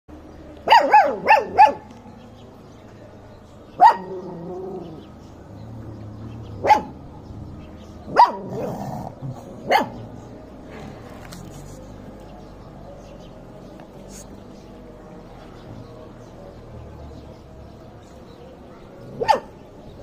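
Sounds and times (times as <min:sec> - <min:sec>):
puppies yapping: 0:06.6 - 0:07.0, 0:19.0 - 0:19.6.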